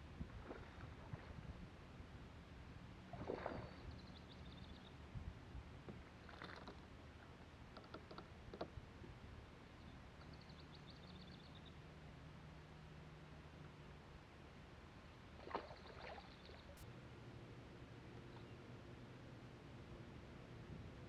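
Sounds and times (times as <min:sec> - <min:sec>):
steady low hum: 0:16.3 - 0:21.0.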